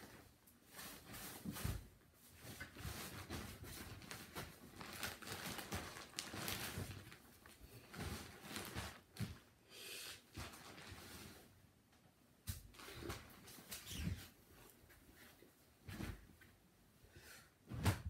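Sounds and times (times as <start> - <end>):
rustling: 0.0 - 9.4.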